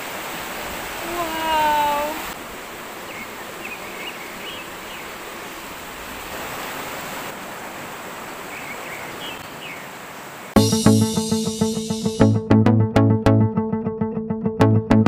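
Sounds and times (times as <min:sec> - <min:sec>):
river water rushing over rocks: 0:00.0 - 0:10.5.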